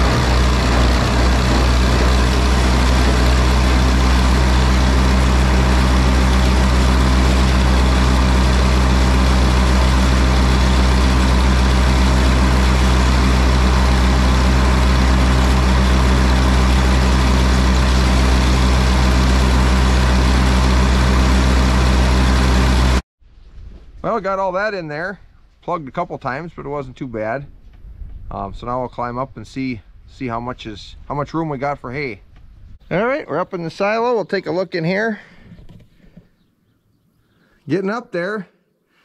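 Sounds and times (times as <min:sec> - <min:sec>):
forage blower mechanical noise: 0:00.0 - 0:23.0
low engine hum: 0:00.0 - 0:23.0.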